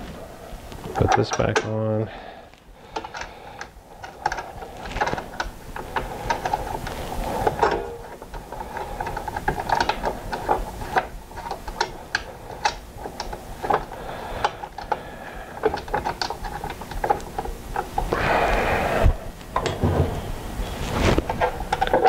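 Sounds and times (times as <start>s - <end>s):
rasping scrape: 20.6s - 22.0s.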